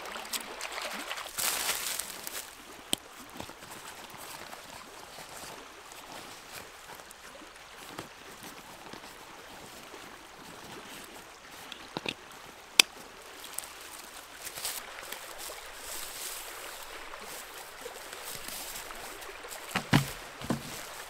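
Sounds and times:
river rushing: 12.4s - 21.0s.

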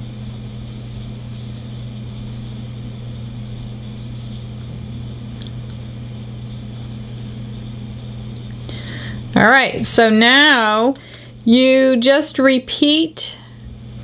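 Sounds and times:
high-pitched whine: 0.0s - 10.8s
electrical hum: 0.0s - 14.0s.

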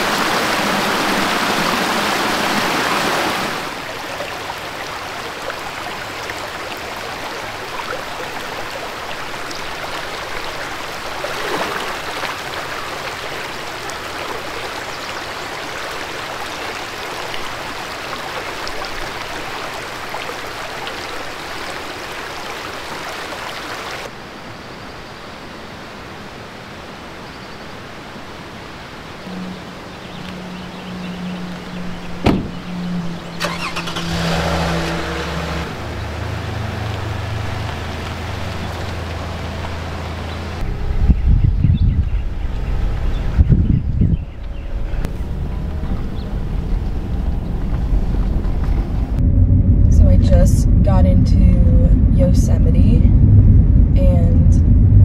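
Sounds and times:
creek rushing over rocks: 0.0s - 24.2s
soft outdoor ambience: 0.0s - 55.0s.

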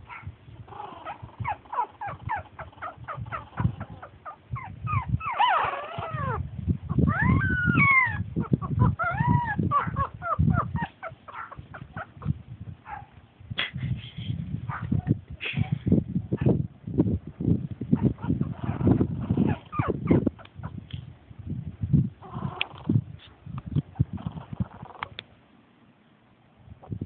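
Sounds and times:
puppies yipping and squeaking: 0.0s - 13.1s, 17.9s - 20.8s, 23.8s - 25.2s
puppies whining: 0.1s - 13.0s, 18.0s - 20.8s, 24.0s - 25.2s.

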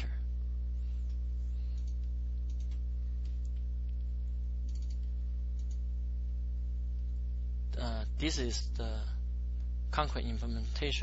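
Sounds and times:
electrical mains hum: 0.0s - 11.0s
faint computer clicks: 1.0s - 5.8s.

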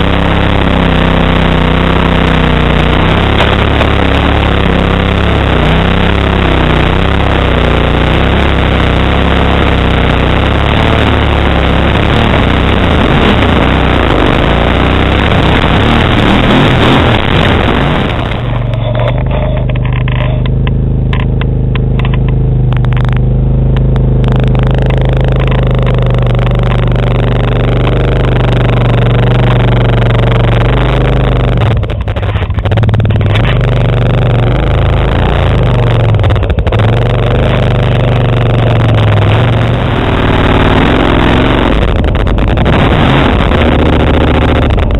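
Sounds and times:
another atv driving: 0.0s - 44.9s
atv engine under load: 0.0s - 44.9s
bumping noise: 0.0s - 44.9s
wind: 15.4s - 44.9s.

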